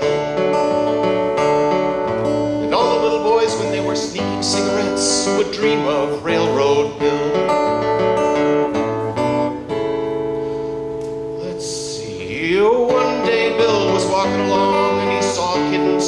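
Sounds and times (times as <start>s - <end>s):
acoustic guitar strumming: 0.0s - 16.0s
man singing: 2.6s - 8.0s, 11.3s - 16.0s.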